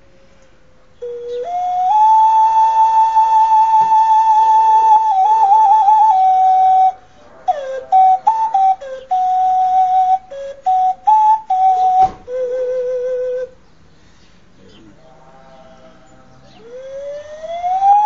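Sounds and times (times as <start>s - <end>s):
clay whistle blown: 1.1s - 13.5s.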